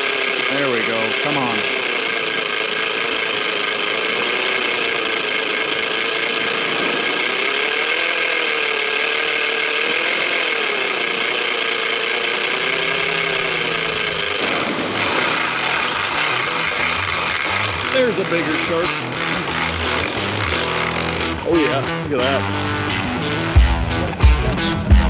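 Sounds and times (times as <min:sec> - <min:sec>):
fishing reel screaming: 0:00.0 - 0:23.0.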